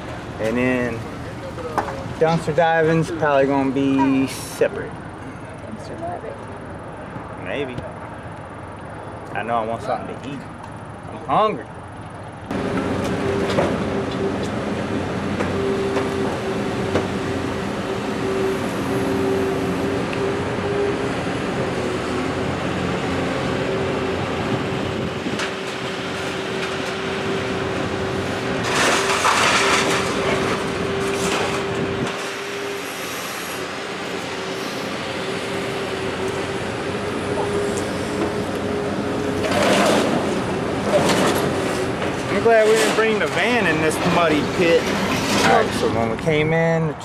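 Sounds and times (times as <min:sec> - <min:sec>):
grapple crane machinery whining: 0:00.0 - 0:46.2
loud harsh clatter: 0:28.6 - 0:32.4.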